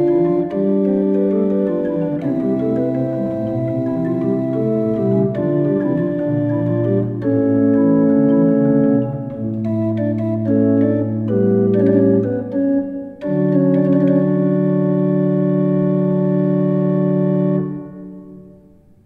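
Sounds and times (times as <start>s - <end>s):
chamber organ playing chords: 0.0s - 18.8s.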